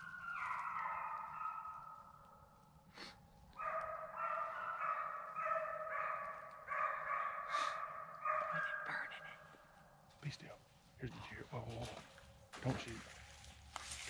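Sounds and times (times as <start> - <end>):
hunting dogs baying: 0.0 - 2.5, 3.2 - 10.0.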